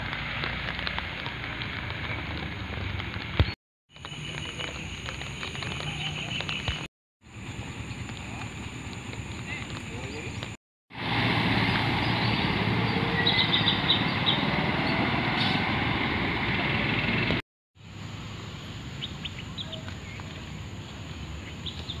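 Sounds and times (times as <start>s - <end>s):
water rushing: 7.6s - 17.4s
bird chirps: 12.0s - 15.6s.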